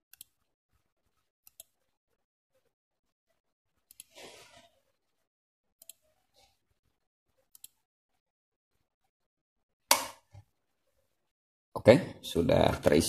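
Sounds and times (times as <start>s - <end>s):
computer mouse clicks: 0.1s - 0.3s, 1.4s - 1.8s, 3.9s - 4.2s, 5.8s - 6.0s, 7.5s - 7.8s.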